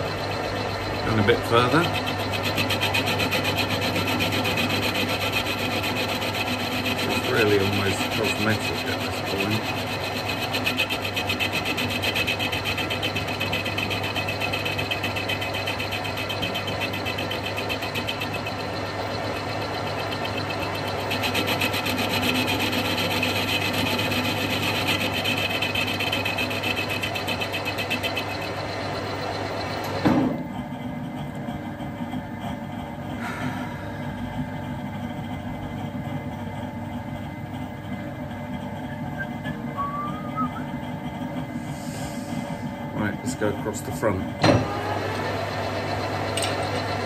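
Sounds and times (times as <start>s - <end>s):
cutting tool chatter: 0.0s - 29.8s
metal lathe humming: 0.0s - 47.0s.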